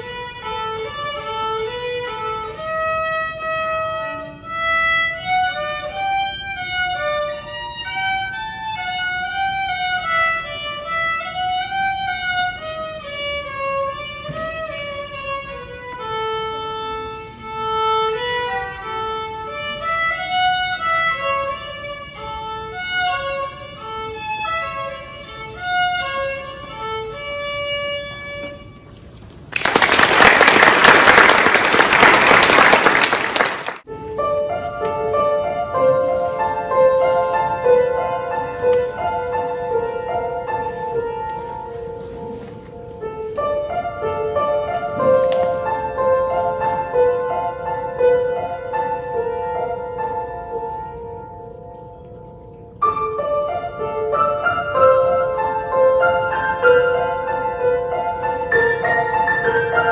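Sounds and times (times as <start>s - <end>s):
solo violin melody: 0.0s - 29.2s, 33.8s - 51.6s, 52.3s - 59.9s
audience applauding: 29.5s - 33.8s.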